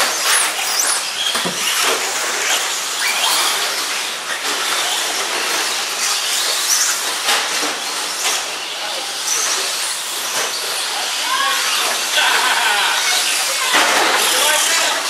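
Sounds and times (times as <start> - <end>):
toy trucks racing hiss: 0.0 - 15.0
sharp knocks: 1.4 - 1.8.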